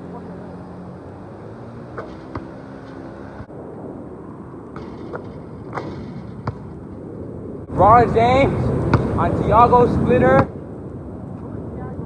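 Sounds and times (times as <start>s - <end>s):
basketball bouncing on asphalt: 1.9s - 3.4s, 4.7s - 7.1s, 8.8s - 9.3s.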